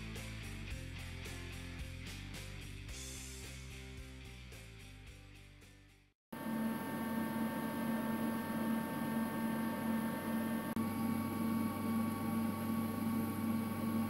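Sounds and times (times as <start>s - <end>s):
machine running with steady hum: 6.3s - 14.0s.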